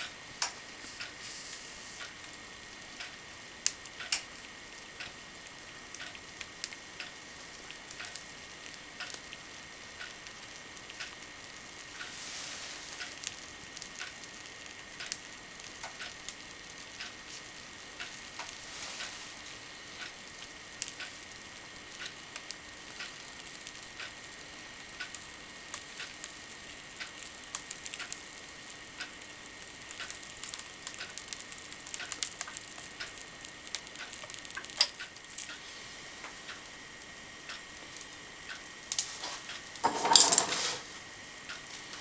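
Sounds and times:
soft sizzling of foam: 0:00.0 - 0:39.9
hot-wire foam cutter ticking: 0:03.0 - 0:05.2, 0:05.9 - 0:09.4, 0:15.0 - 0:18.5, 0:20.0 - 0:28.3, 0:29.0 - 0:35.6.

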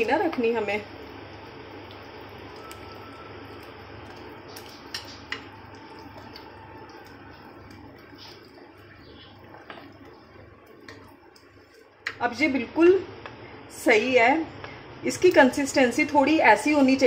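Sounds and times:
spoon scraping batter in bowl: 0:04.1 - 0:05.5.

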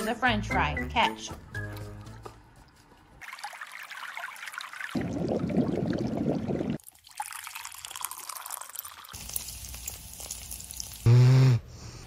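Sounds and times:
water pouring and trickling: 0:01.6 - 0:11.1
water poured from kettle into cup: 0:03.2 - 0:11.1.

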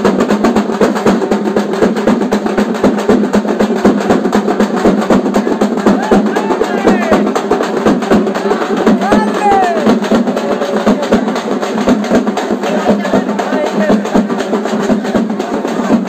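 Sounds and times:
rapid drum rolls: 0:00.0 - 0:16.0.

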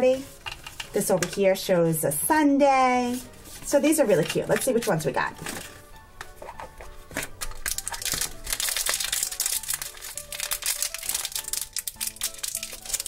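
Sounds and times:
soft background music: 0:00.0 - 0:13.0
plastic wrapper crackling: 0:07.2 - 0:13.0.

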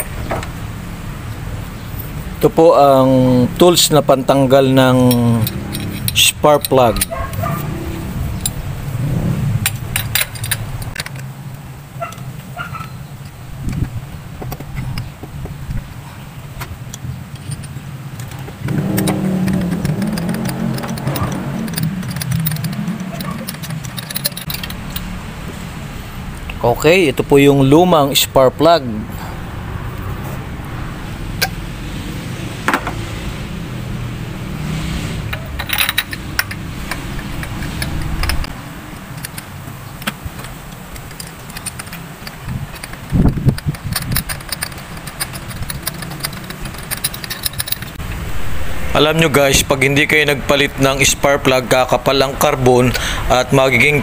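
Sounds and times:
vehicle engine hum: 0:00.0 - 0:54.0
socket wrench metal clicks: 0:04.8 - 0:07.7, 0:16.6 - 0:25.1, 0:35.3 - 0:48.0.

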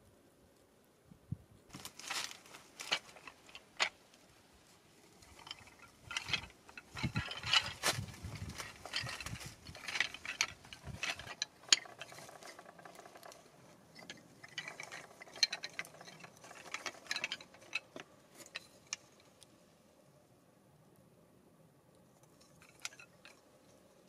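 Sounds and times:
wooden sticks clicking and knocking: 0:01.7 - 0:04.2, 0:05.2 - 0:19.5, 0:22.3 - 0:23.8.

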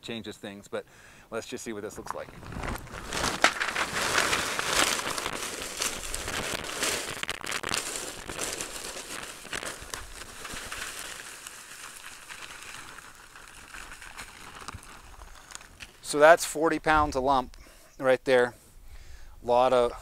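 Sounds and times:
paper bag crinkling: 0:02.0 - 0:16.1
charcoal chunks clattering: 0:02.0 - 0:16.2.

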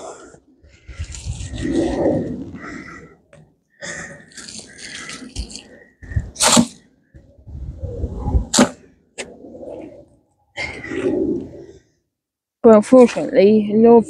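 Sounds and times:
hand tool scraping soil: 0:06.4 - 0:06.8.

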